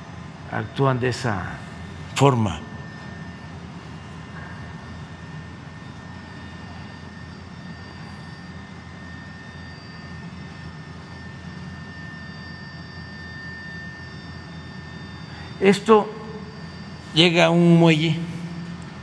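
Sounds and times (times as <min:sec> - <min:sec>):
low hum with hiss: 0:00.0 - 0:07.0, 0:14.4 - 0:19.0.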